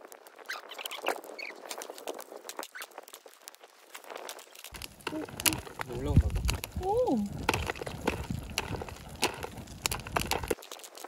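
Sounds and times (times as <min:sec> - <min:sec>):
campfire wood crackling: 0:00.0 - 0:11.0
popcorn popping: 0:04.7 - 0:11.0.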